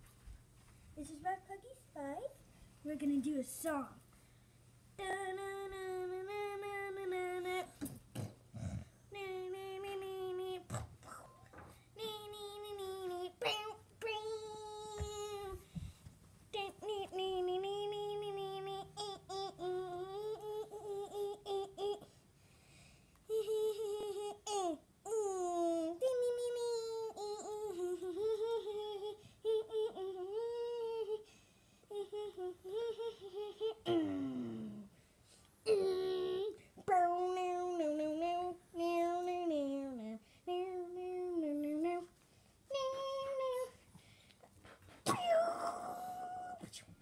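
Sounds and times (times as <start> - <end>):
child humming: 5.0 - 11.4, 12.0 - 15.6, 16.6 - 22.2, 23.3 - 31.3, 31.9 - 34.9, 35.6 - 42.1, 45.0 - 46.8.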